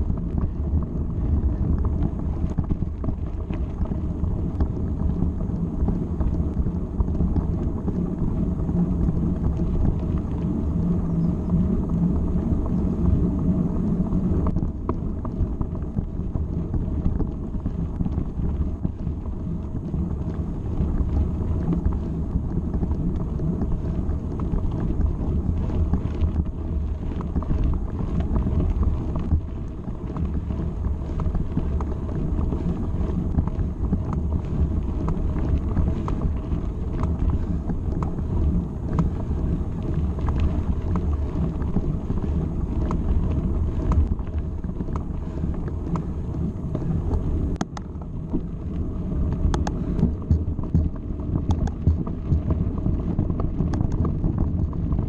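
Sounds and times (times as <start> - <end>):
bike tyres rolling on gravel: 0.0 - 55.0
stones and bike rattling: 0.0 - 55.0
wind buffeting microphone: 0.0 - 55.0.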